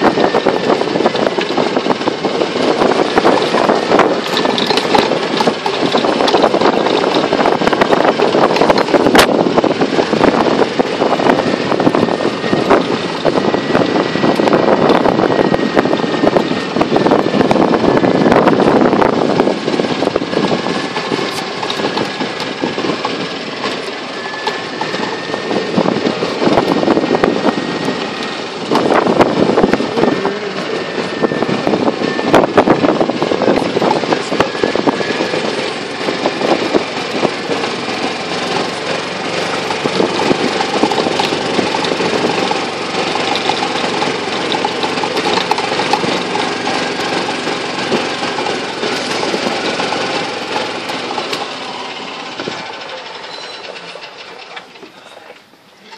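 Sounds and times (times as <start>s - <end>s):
golf cart motor running: 0.0s - 55.9s
jolts and rattles: 2.4s - 9.2s.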